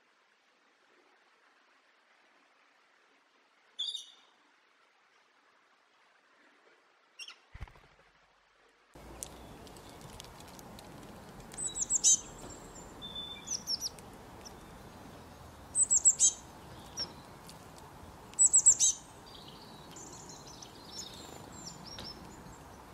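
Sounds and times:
faint bird twittering: 3.8s - 4.3s, 11.5s - 17.4s, 18.4s - 22.9s
songbird chirping: 3.8s - 4.4s, 7.2s - 7.5s, 9.0s - 22.9s.

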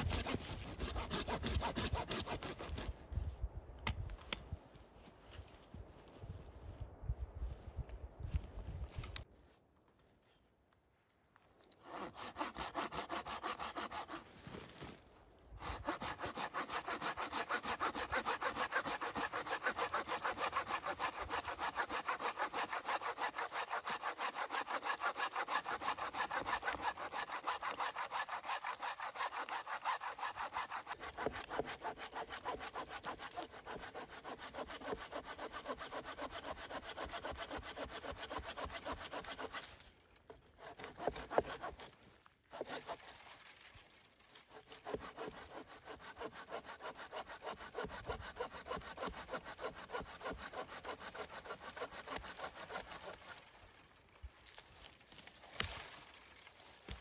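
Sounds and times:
hand saw cutting wood: 0.0s - 3.0s, 11.7s - 14.8s, 15.6s - 43.2s, 44.4s - 53.5s.

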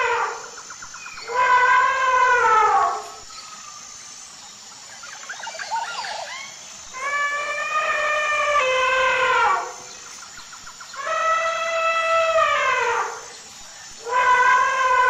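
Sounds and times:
elephant trumpeting: 1.2s - 3.2s, 7.0s - 9.8s, 11.0s - 13.3s, 14.0s - 15.0s.

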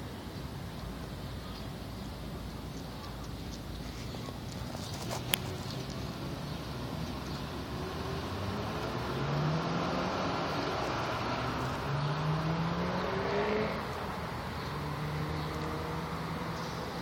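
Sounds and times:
car engine accelerating: 7.7s - 16.6s.

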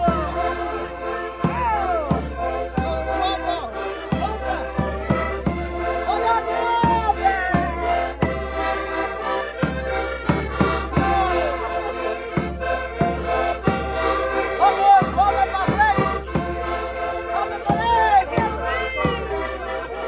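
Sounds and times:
button accordions playing dance tune: 0.0s - 20.0s
sharp rhythmic strikes: 0.0s - 20.0s.

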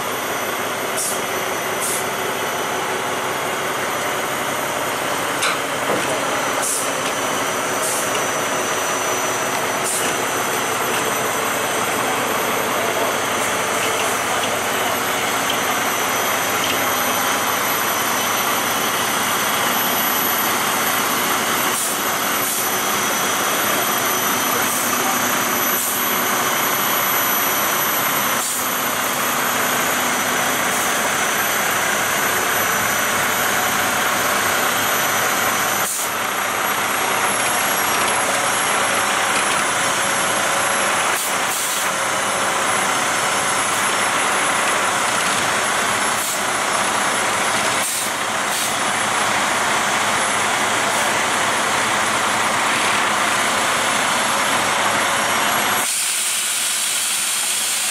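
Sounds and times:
heavy vehicle engine running: 0.0s - 57.9s.

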